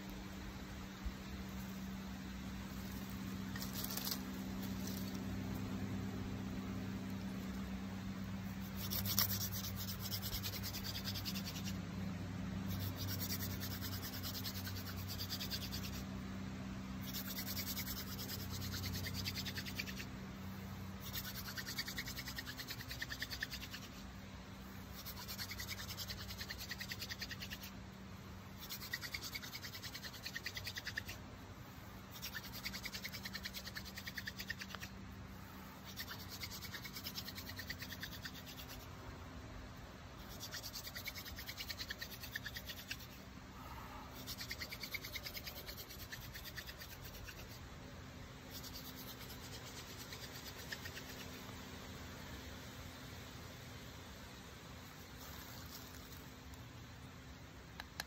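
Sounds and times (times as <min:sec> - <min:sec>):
palms rubbing wooden spindle: 0:08.6 - 0:11.8, 0:12.7 - 0:16.0, 0:17.0 - 0:20.1, 0:21.0 - 0:24.0, 0:24.8 - 0:27.8, 0:28.6 - 0:38.9, 0:40.2 - 0:47.6.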